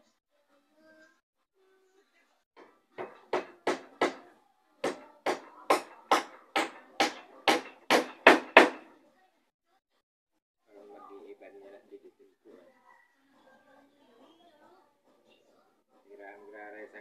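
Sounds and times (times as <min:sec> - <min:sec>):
hammer blows on wood: 0:02.6 - 0:08.9.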